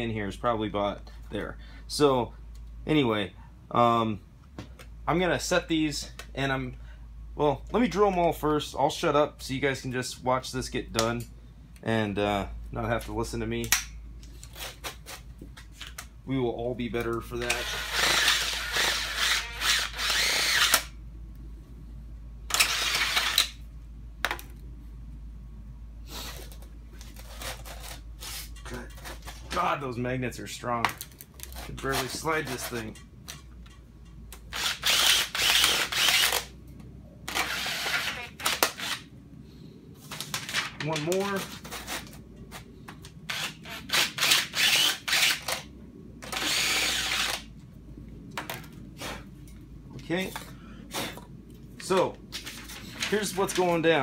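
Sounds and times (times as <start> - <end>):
cordless drill stopping: 17.6 - 20.8, 34.6 - 36.4, 37.3 - 38.1, 43.3 - 45.5, 46.3 - 47.4.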